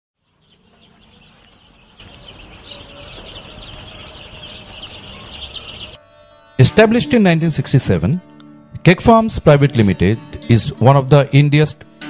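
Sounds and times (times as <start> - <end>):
chickens chirping: 0.2 - 6.0.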